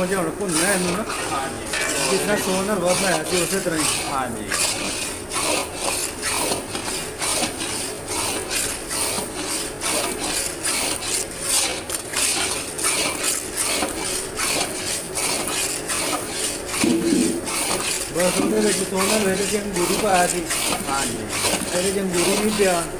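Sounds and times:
metal spatula scraping iron pan: 0:00.5 - 0:06.8, 0:14.5 - 0:22.8.

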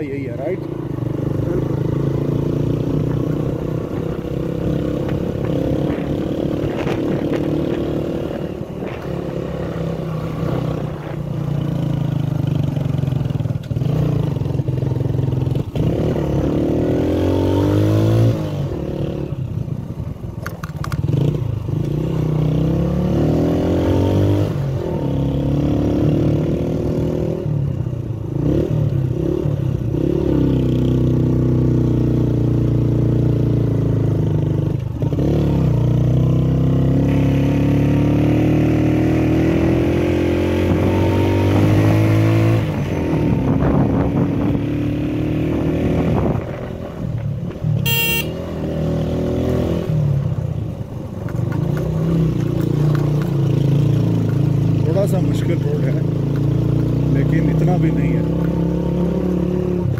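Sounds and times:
vehicle engine accelerating: 0:28.3 - 0:59.9.

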